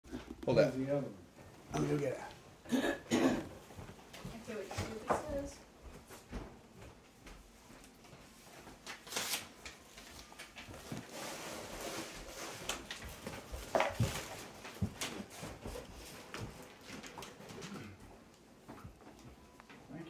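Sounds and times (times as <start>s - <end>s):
rustling and shuffling: 0.1s - 20.0s.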